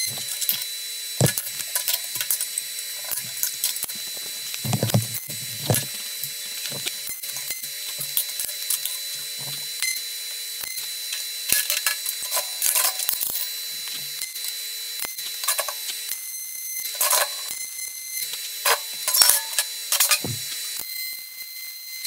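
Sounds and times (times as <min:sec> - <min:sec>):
welding arc crackling and buzzing: 0:00.0 - 0:16.1, 0:18.4 - 0:20.8
steel parts clinking on table: 0:19.1 - 0:20.2.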